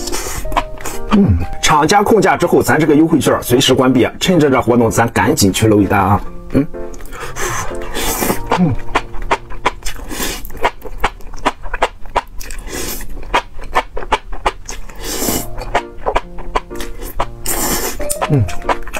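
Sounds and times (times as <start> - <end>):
slurping and chewing: 0.0 - 1.6, 6.6 - 18.9.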